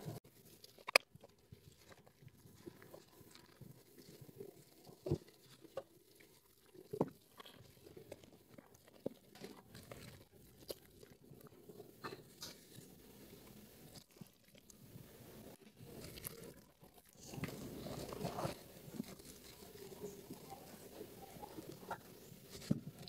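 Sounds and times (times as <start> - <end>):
crackling foam: 0.0 - 23.0.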